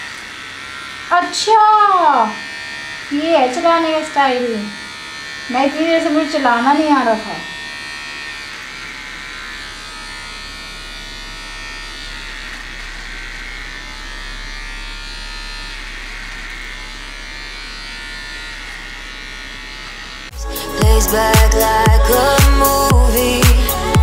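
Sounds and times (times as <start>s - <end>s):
electric hair trimmer buzzing: 0.0s - 24.0s
music: 20.3s - 24.0s.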